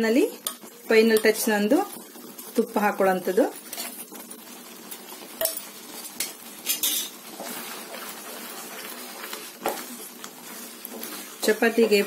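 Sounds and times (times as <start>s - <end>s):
gravy simmering sizzle: 0.0s - 12.0s
wooden spatula stirring gravy: 3.6s - 12.0s.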